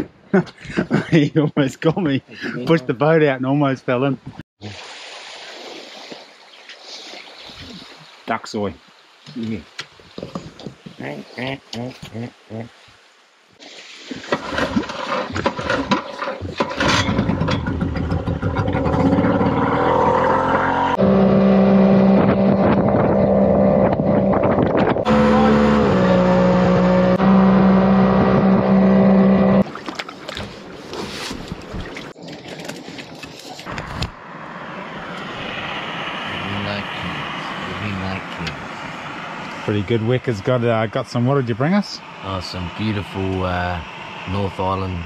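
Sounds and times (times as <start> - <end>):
outboard motor running: 14.3 - 30.6.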